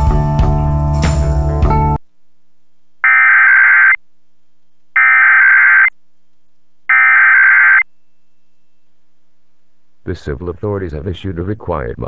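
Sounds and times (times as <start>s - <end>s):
digital data tone bursts: 3.0s - 4.0s, 5.0s - 5.9s, 6.9s - 7.9s.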